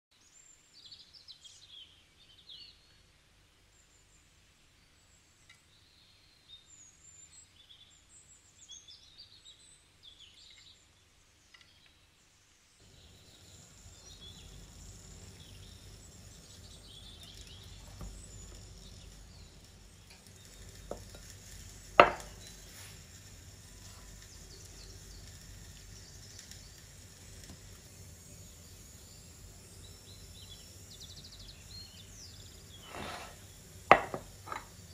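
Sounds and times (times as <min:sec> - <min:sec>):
low room hum: 0:00.4 - 0:34.9
birds chirping and singing: 0:12.9 - 0:22.7.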